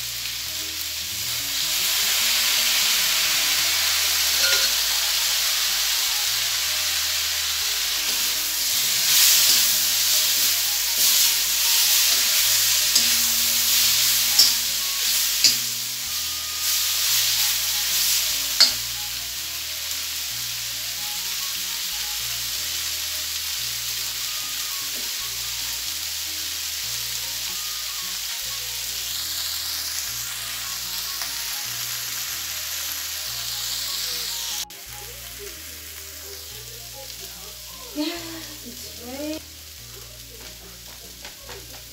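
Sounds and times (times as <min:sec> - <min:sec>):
meat sizzling in a wok: 0:00.0 - 0:41.9
metal spoon scraping pan: 0:04.3 - 0:04.8, 0:08.1 - 0:17.7.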